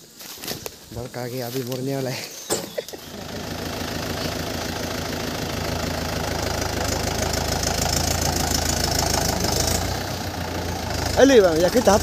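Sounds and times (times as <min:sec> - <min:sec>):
tractor engine running: 0:02.5 - 0:12.0.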